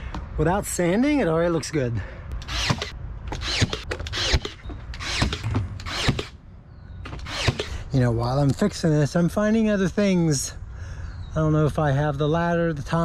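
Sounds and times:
cordless power tool bursts: 2.4s - 6.4s, 7.1s - 7.9s.

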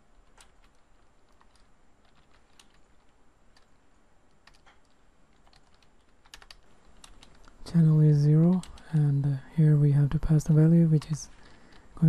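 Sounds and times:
typing on computer keyboard: 0.1s - 7.6s, 8.4s - 9.1s, 10.9s - 11.9s.

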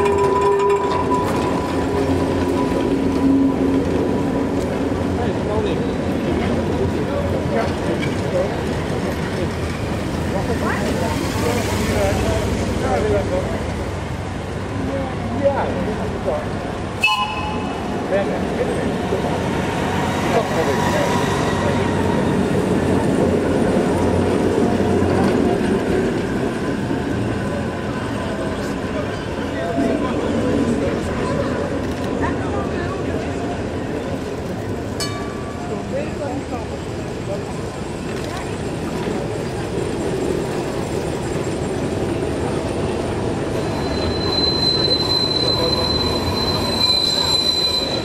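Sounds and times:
high-pitched wheel squeal: 0.0s - 3.7s, 43.5s - 48.0s
tram wheels rolling on rails: 0.0s - 48.0s.

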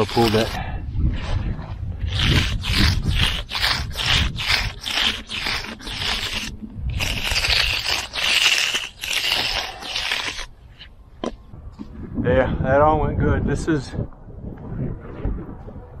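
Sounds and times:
float scraping over concrete: 0.0s - 11.4s.

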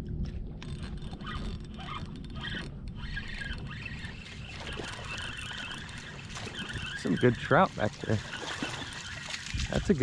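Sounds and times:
wind on microphone: 0.0s - 10.0s
waves lapping at boat: 0.2s - 10.0s.

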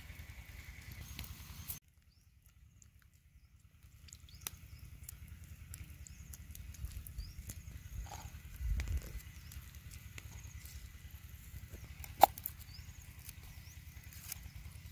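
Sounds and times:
wind rumble on microphone: 6.6s - 9.8s.

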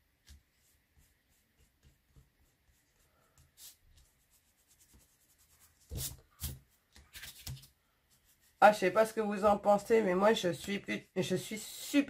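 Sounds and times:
sponge scrubbing on card: 0.3s - 6.6s.

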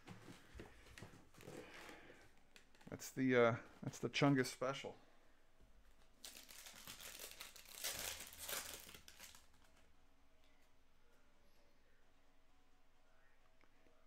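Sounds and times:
wrapper torn and crinkled: 6.2s - 9.8s.

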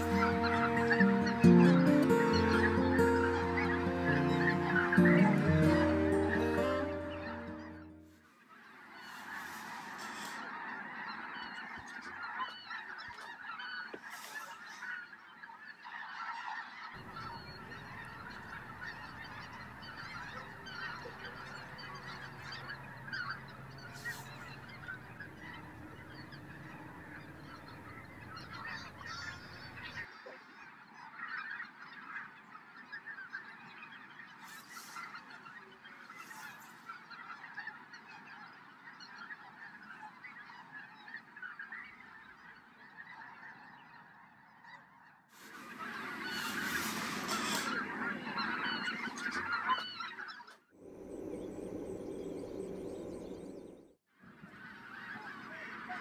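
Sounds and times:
geese honking: 0.0s - 56.0s
low rumble: 50.8s - 54.0s.

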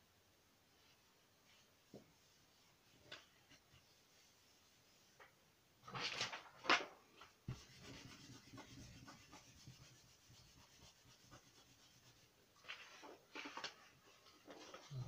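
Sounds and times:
paper rustling: 5.9s - 11.6s, 12.6s - 15.0s
hand rubbing across paper: 7.5s - 13.2s.

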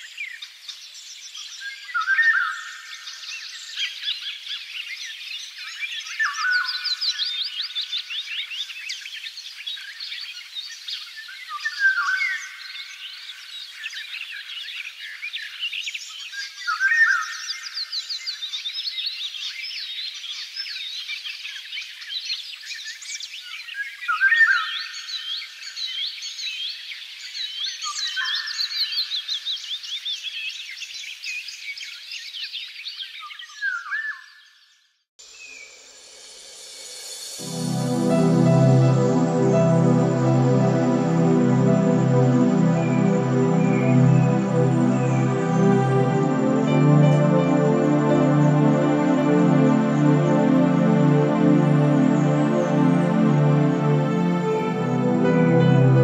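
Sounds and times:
soft music: 36.0s - 56.0s.

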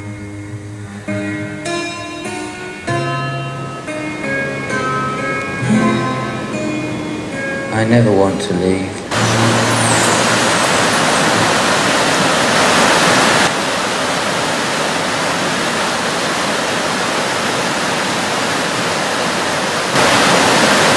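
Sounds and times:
water rushing over rocks: 9.1s - 20.9s.

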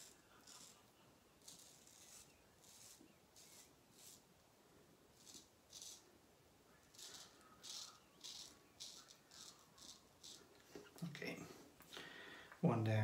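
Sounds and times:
razor scraping stubble: 0.0s - 4.3s, 5.1s - 6.1s, 6.7s - 11.3s.

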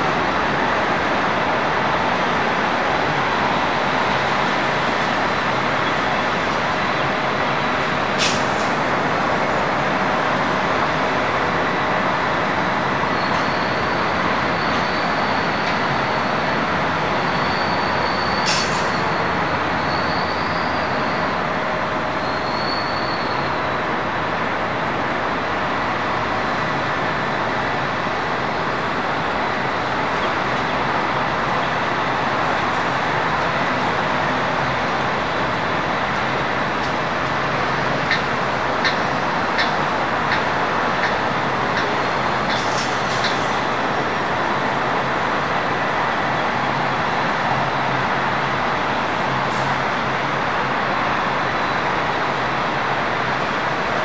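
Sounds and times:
diesel truck engines running: 0.0s - 54.0s
faint high wavering whistle: 22.2s - 23.6s.

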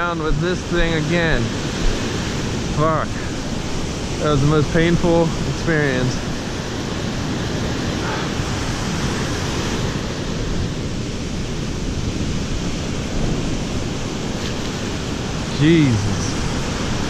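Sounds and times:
ocean waves breaking: 0.0s - 17.0s.

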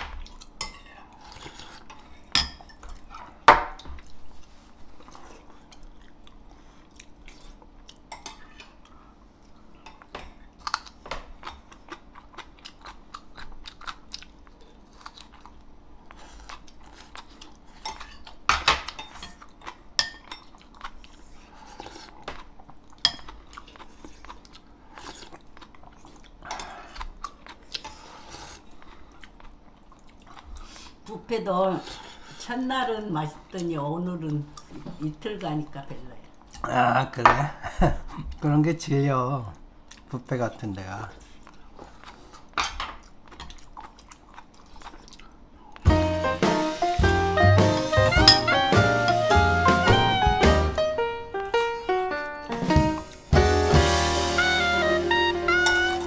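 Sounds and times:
person chewing food: 0.0s - 31.0s, 39.8s - 40.1s, 41.2s - 45.9s.

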